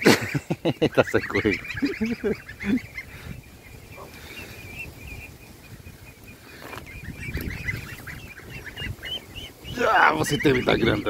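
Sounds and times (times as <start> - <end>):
goslings peeping: 0.0 - 11.0
goose honk: 1.0 - 3.3, 6.6 - 11.0.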